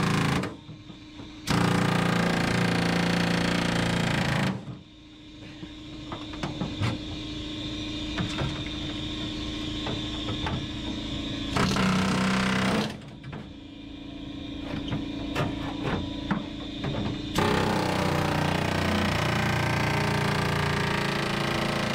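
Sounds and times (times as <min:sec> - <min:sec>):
air hammer cutting sheet metal: 0:17.3 - 0:21.9.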